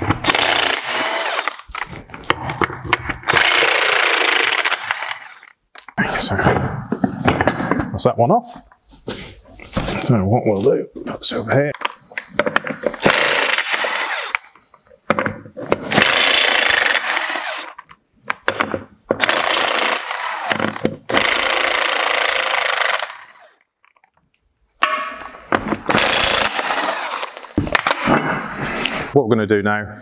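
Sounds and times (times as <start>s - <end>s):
impact wrench bursts: 0.2s - 1.8s, 3.3s - 5.6s, 13.0s - 14.5s, 15.9s - 17.8s, 19.2s - 23.6s, 25.9s - 28.0s.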